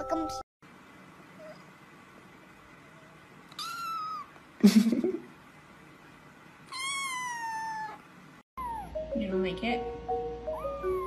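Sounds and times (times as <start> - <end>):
kitten meowing: 3.5 - 4.3, 6.7 - 8.0, 8.6 - 8.9, 10.6 - 11.0.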